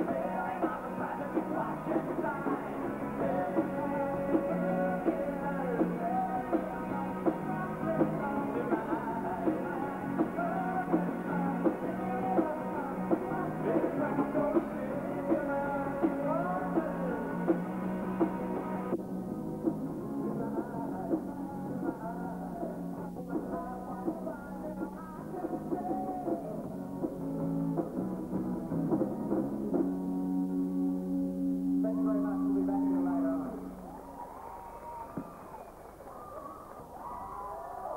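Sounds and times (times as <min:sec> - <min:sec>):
man singing: 0:00.0 - 0:18.9, 0:20.0 - 0:26.8, 0:31.7 - 0:33.8
rock band playing: 0:00.0 - 0:34.0.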